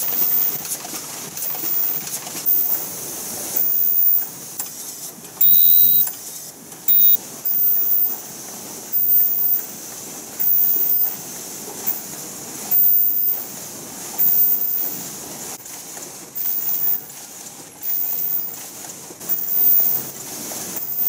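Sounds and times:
paper cup machinery running: 0.0s - 21.0s
short loud machine bursts: 5.4s - 6.2s, 14.2s - 15.1s, 16.4s - 17.1s, 17.8s - 18.6s, 19.3s - 21.0s.

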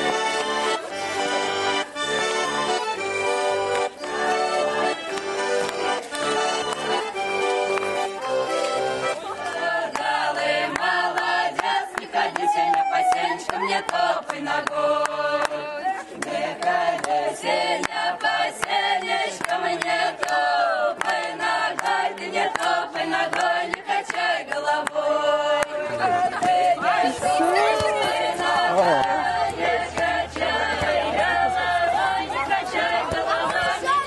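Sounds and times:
group singing unaccompanied: 8.9s - 34.0s.

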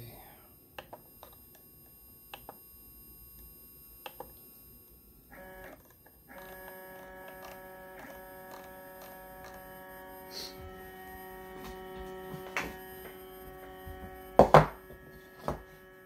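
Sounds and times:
stepper motors whining: 5.3s - 16.0s.

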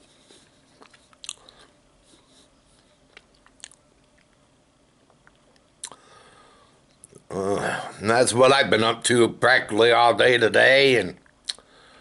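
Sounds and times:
faint chewing: 0.0s - 6.1s
wet mouth clicks and lip smacks: 0.8s - 1.5s, 3.1s - 4.4s, 5.1s - 6.0s, 11.4s - 11.6s.

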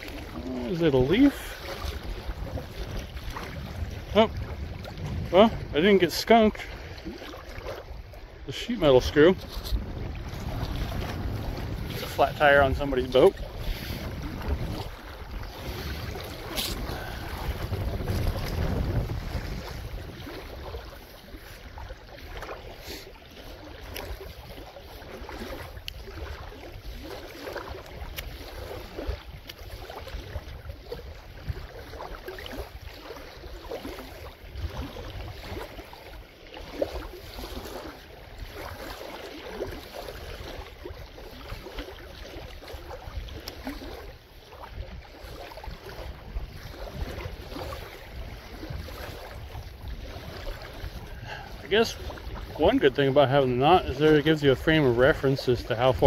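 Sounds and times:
wind rumble on microphone: 0.0s - 22.8s, 23.4s - 56.0s
wet rope rustling and patter: 9.4s - 22.8s.

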